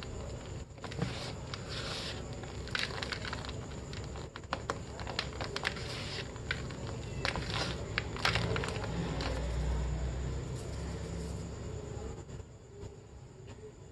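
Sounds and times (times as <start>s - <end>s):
soft powdery rustle: 0.0s - 9.6s
chalk crackling as lumps break: 0.8s - 9.4s.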